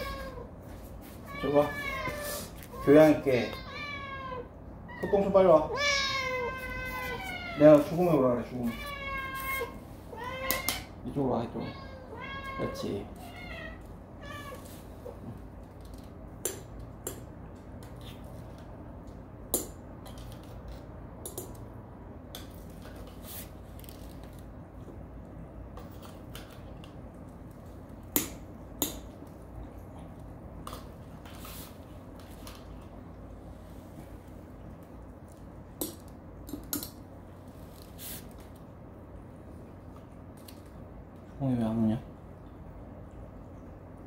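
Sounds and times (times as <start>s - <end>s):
cat meowing: 0.0s - 0.5s, 1.3s - 10.9s, 11.5s - 14.7s.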